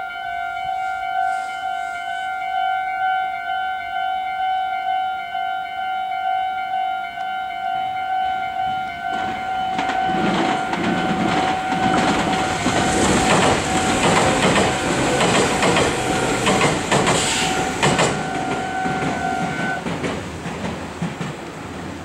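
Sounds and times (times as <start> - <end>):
level crossing warning bell ringing: 0.0 - 19.8
electric train running: 8.6 - 22.0
train wheels clacking over rail joints: 9.1 - 22.0.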